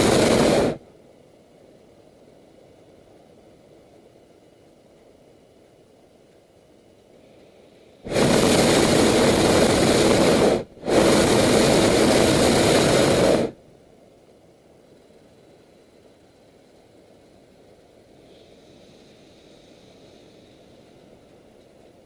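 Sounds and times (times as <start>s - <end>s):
propane burner firing: 0.0s - 0.9s, 7.9s - 13.7s.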